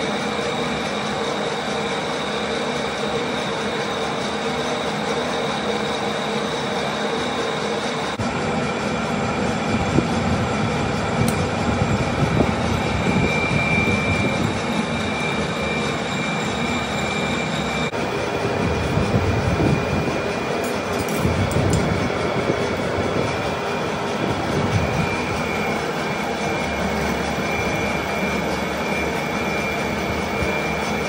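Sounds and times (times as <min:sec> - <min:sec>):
metal lathe running: 0:00.0 - 0:31.0
thin high whining tones: 0:11.0 - 0:31.0.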